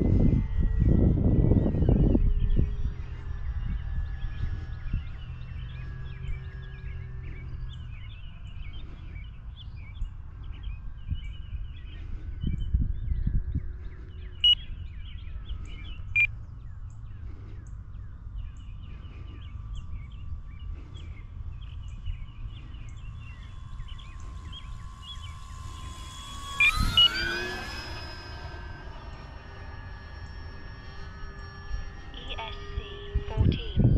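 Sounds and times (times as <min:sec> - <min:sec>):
model plane motor whine: 0:00.0 - 0:33.9
songbirds chirping: 0:00.0 - 0:33.9
wind on microphone: 0:00.0 - 0:33.9
short beeps: 0:24.6 - 0:33.9.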